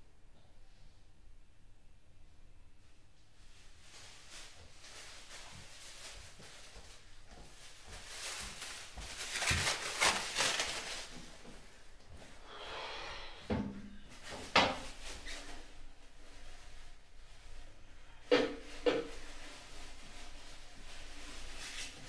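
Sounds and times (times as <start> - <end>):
rustling: 3.4 - 22.0
footsteps on hard floor: 4.5 - 10.2.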